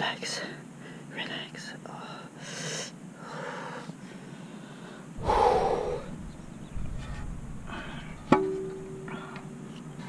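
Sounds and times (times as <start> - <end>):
person breathing out heavily: 3.2 - 6.2.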